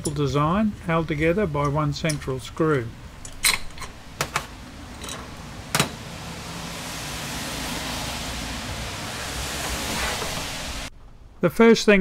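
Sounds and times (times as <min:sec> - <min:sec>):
steady hiss: 0:00.4 - 0:10.9
metal parts clinking on workbench: 0:05.0 - 0:05.3.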